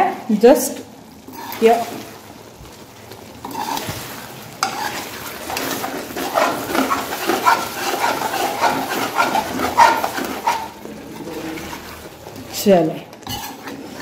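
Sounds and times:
metal ladle scraping pot: 0:03.4 - 0:04.0, 0:04.6 - 0:12.1, 0:13.2 - 0:14.0.

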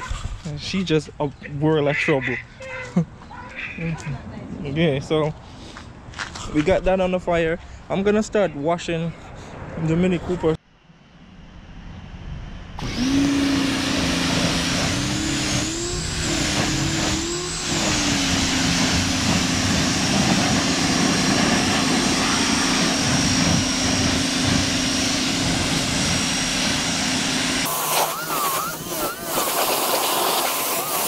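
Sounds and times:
pressure washer motor hum: 0:12.8 - 0:31.0
water spray hissing: 0:13.2 - 0:31.0.

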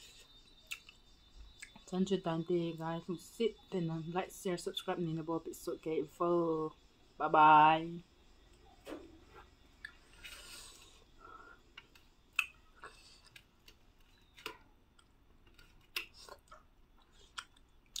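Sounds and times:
soft eating clicks and smacks: 0:00.4 - 0:01.9, 0:09.8 - 0:18.0.

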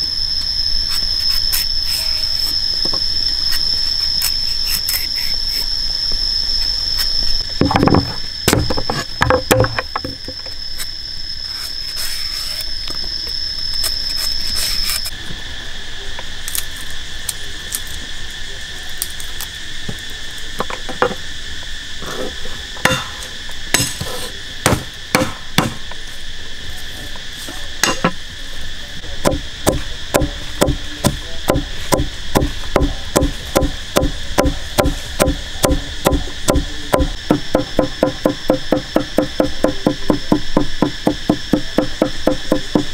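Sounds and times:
insects droning: 0:00.0 - 0:42.9
cleaver chopping on wooden board: 0:24.7 - 0:25.8, 0:29.2 - 0:42.9.

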